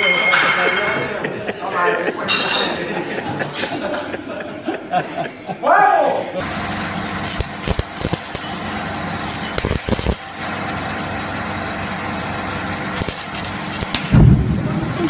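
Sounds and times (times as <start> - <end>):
firecracker bang: 13.9 - 15.0.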